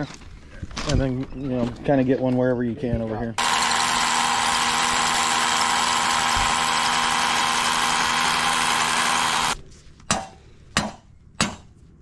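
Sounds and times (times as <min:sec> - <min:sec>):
cordless drill boring into concrete: 0:03.4 - 0:09.6
hammer striking wooden stake: 0:10.1 - 0:11.7.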